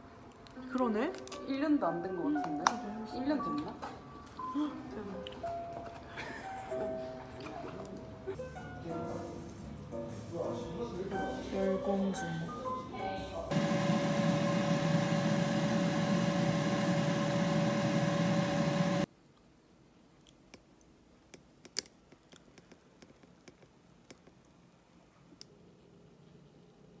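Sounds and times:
air fryer fan hum: 0:13.5 - 0:19.1.

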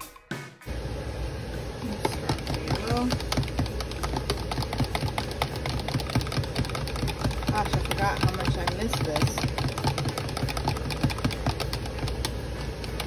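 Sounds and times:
music: 0:00.0 - 0:00.8
handheld mixer whirring: 0:01.4 - 0:13.0
whisk rattling against plastic cup: 0:01.8 - 0:13.0.

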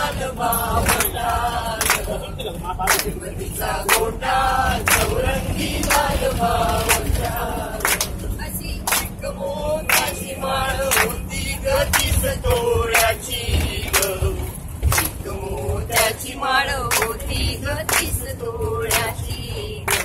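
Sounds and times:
group singing in unison: 0:00.0 - 0:20.0
low rumble of bus: 0:00.0 - 0:20.0
hand claps: 0:00.8 - 0:01.2, 0:01.8 - 0:02.2, 0:02.9 - 0:03.2, 0:04.9 - 0:05.2, 0:07.8 - 0:08.2, 0:08.8 - 0:09.2, 0:09.9 - 0:10.2, 0:10.9 - 0:11.2, 0:11.9 - 0:12.2, 0:12.9 - 0:13.2, 0:13.9 - 0:14.2, 0:14.9 - 0:15.2, 0:16.9 - 0:18.2, 0:18.9 - 0:19.2.

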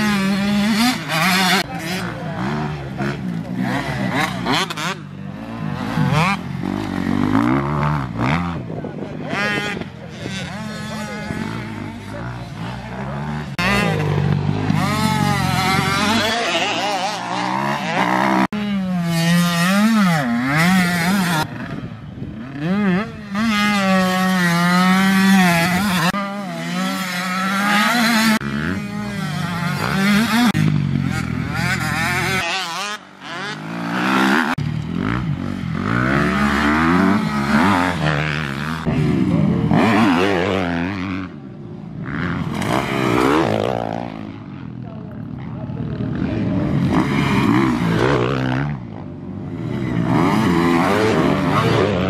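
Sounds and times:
motocross bike engines revving: 0:00.0 - 0:52.0.

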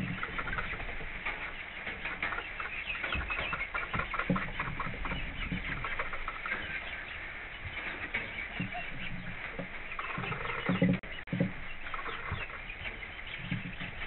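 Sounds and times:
chickens clucking: 0:00.0 - 0:14.0
rain on a roof: 0:00.0 - 0:14.0.

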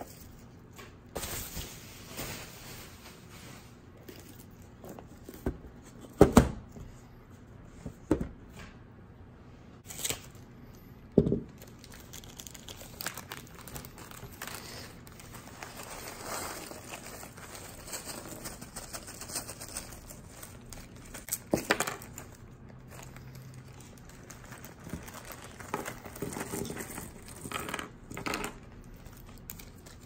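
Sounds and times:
plastic wrap crinkling and tearing: 0:11.5 - 0:27.5, 0:28.7 - 0:30.0.

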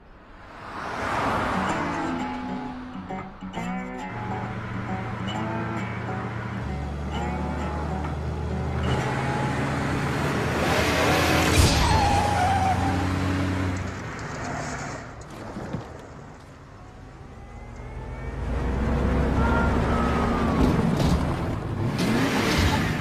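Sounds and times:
cartoon car engines droning: 0:01.0 - 0:15.2, 0:16.1 - 0:23.0
tyre skid squeal: 0:11.4 - 0:13.2.

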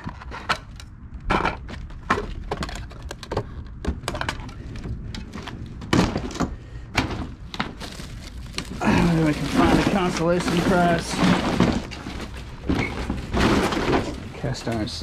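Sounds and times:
debris knocking and clattering in dumpster: 0:05.3 - 0:15.0.

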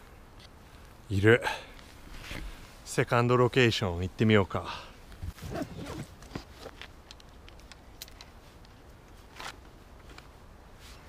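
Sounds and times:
faint handling clicks and knocks: 0:06.1 - 0:10.4.

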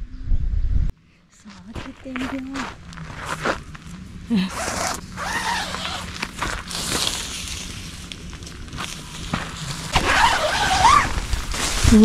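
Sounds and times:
footsteps crunching on gravel: 0:01.5 - 0:12.0
tent fabric rustling: 0:04.5 - 0:12.0.

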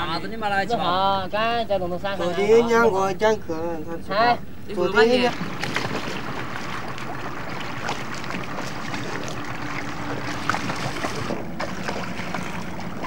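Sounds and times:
birds splashing into water: 0:05.1 - 0:13.0
river water rushing: 0:05.3 - 0:13.0.

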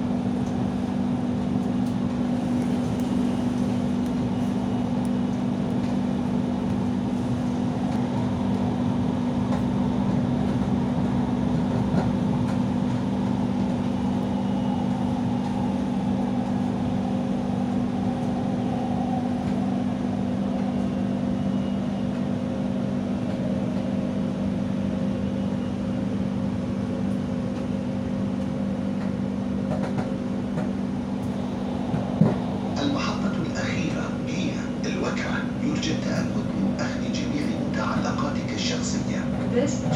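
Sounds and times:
train cabin hum: 0:00.0 - 0:39.9
train rolling rumble: 0:00.0 - 0:39.9.

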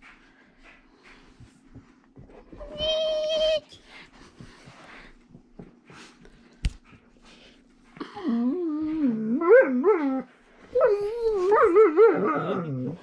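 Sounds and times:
dog whining and howling: 0:08.3 - 0:13.0.

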